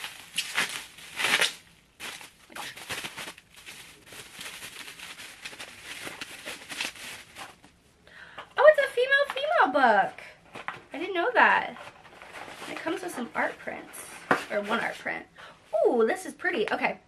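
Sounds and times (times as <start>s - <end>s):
bubble wrap crinkling: 0.0s - 7.8s, 10.5s - 15.1s.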